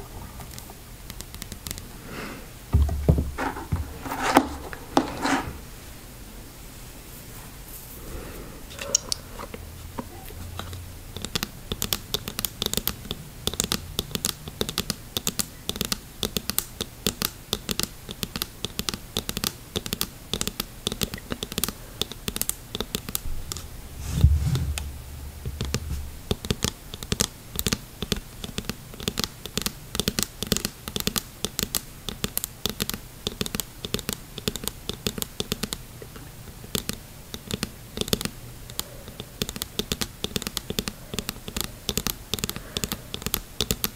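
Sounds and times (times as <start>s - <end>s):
fingernails tapping on mask lens: 0.4s - 1.9s, 10.0s - 43.9s
low thump: 23.3s - 26.3s.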